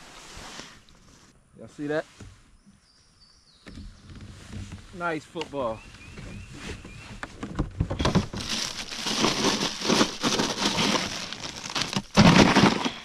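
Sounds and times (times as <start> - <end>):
plastic bag of ice crinkling: 8.0 - 13.0.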